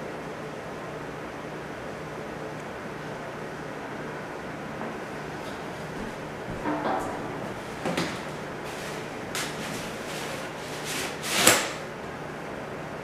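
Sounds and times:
umbrella canopy snapping open: 11.1s - 11.8s.

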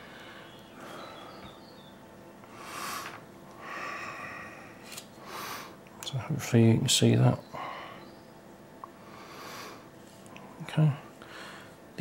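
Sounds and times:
man breathing through nose: 2.4s - 5.8s, 9.0s - 9.9s, 11.2s - 11.8s.

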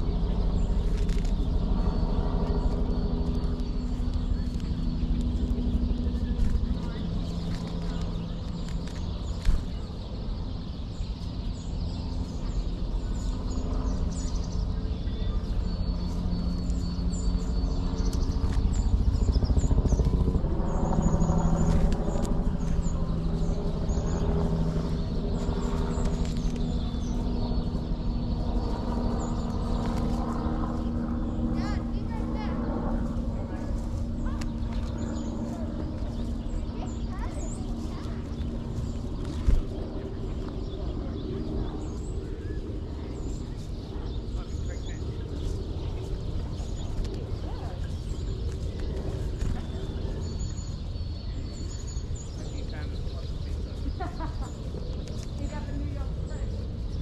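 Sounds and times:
engine humming: 0.0s - 57.0s
low background rumble: 0.0s - 57.0s
small birds calling: 0.0s - 57.0s
songbirds chirping: 0.0s - 57.0s.

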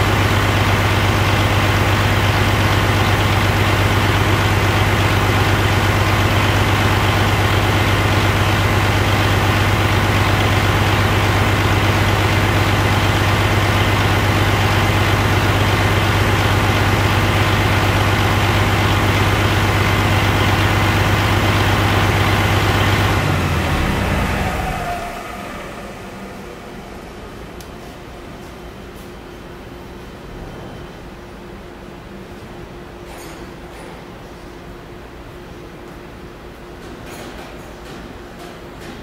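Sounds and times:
engine winding down: 0.0s - 27.6s
diesel engine idling: 0.0s - 28.4s.

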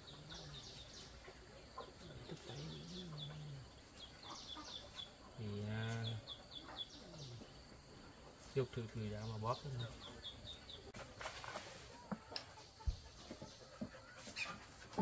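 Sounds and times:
low drawn-out bird calls: 0.0s - 11.0s
birds chirping: 0.0s - 15.0s.

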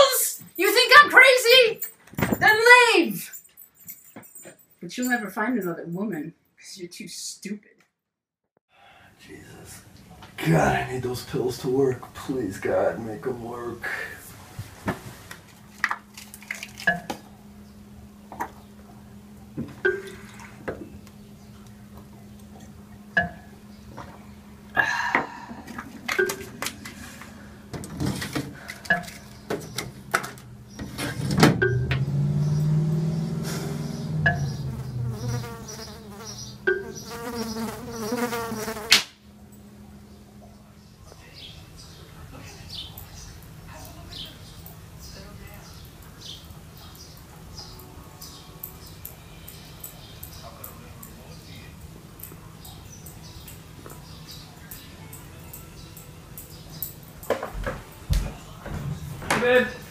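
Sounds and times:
steady low hum: 9.2s - 43.7s
fly buzzing: 32.4s - 39.2s
loud sharp crack: 38.9s - 39.2s.

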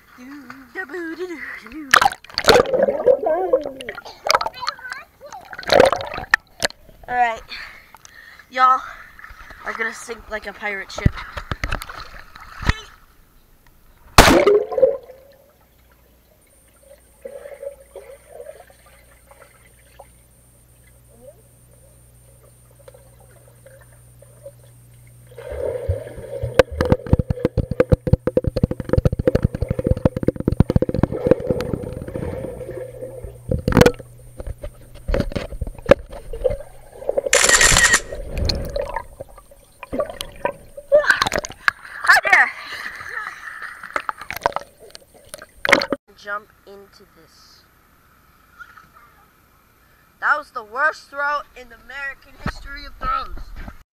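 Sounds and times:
faint low hum: 0.0s - 53.8s
underwater splash: 1.9s - 4.6s, 5.5s - 6.8s, 14.1s - 15.6s, 22.8s - 41.9s, 43.9s - 46.0s.

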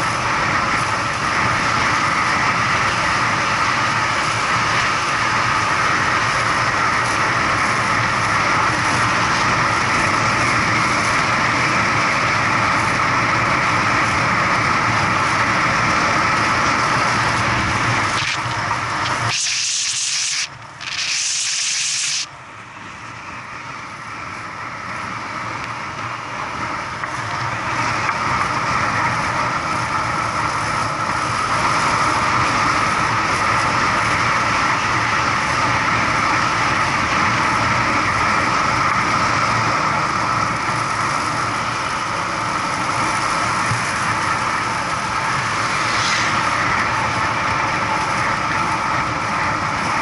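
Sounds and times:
wind and road noise: 0.0s - 50.0s
loud hiss: 18.0s - 22.3s.

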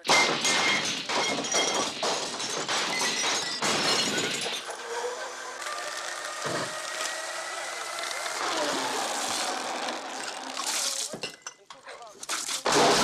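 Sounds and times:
glass breaking and clattering: 0.0s - 5.0s, 10.2s - 13.0s.

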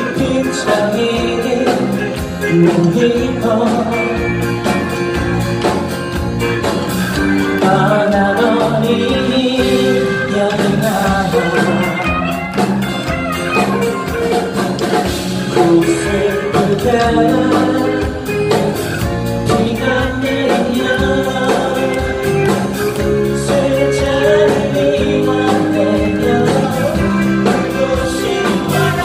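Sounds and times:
man singing: 0.0s - 5.2s, 7.3s - 12.6s, 15.4s - 29.0s
acoustic guitar: 0.0s - 29.0s
drums: 0.0s - 29.0s
electric bass: 0.0s - 29.0s
electric guitar: 0.0s - 29.0s.

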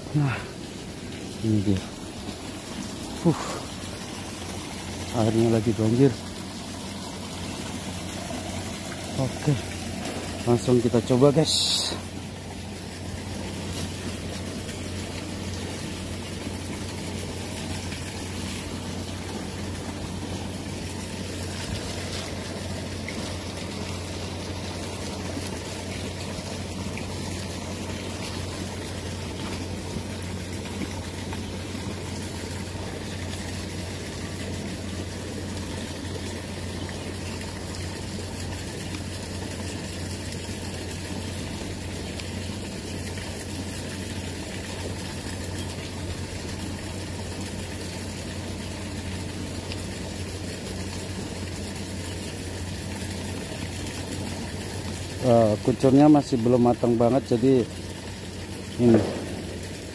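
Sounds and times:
river water rushing: 58.7s - 59.9s.

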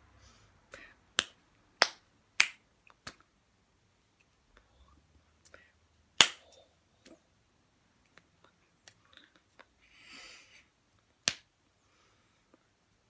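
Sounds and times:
hand slaps and claps: 1.1s - 3.3s, 6.2s - 7.2s, 11.2s - 11.5s.

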